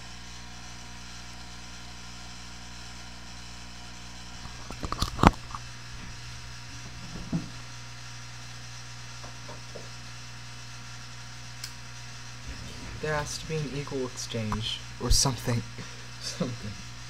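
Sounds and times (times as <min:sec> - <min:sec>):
steady electrical hum: 0:00.0 - 0:17.0
knocks and rattles of furniture: 0:06.1 - 0:07.8, 0:12.4 - 0:13.8
soft thump: 0:07.0 - 0:07.6.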